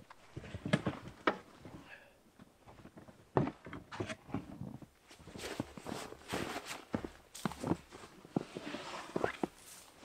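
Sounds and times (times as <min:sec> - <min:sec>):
rustling: 0:05.0 - 0:10.0.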